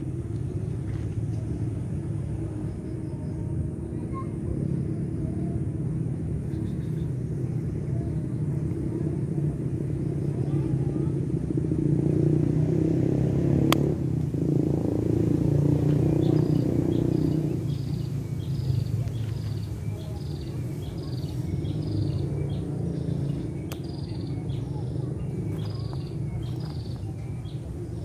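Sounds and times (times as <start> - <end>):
road traffic rumble: 0.0 - 28.0
vehicle passing: 4.6 - 28.0
bird chirping: 6.4 - 8.4, 14.8 - 28.0.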